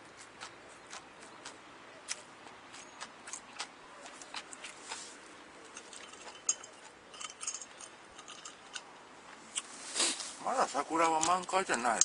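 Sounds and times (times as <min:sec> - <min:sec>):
chewing and mouth clicks: 0:00.1 - 0:08.9.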